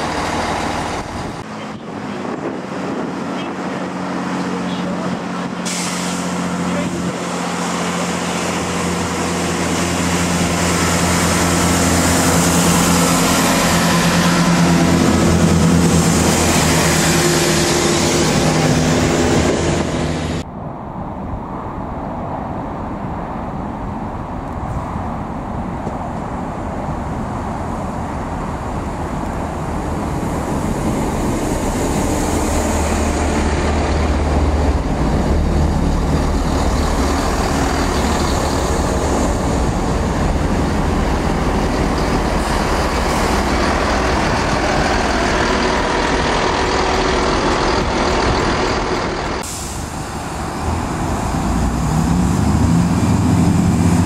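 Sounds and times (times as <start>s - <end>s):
diesel train engines passing: 0.0s - 54.0s
outdoor background noise: 0.0s - 54.0s.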